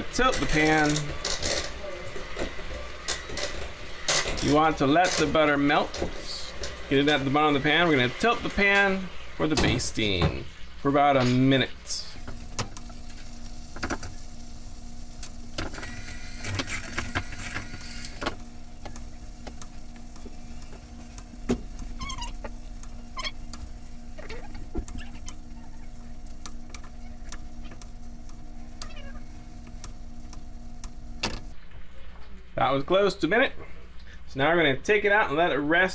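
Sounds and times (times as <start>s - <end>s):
butter sizzling: 12.0s - 31.6s.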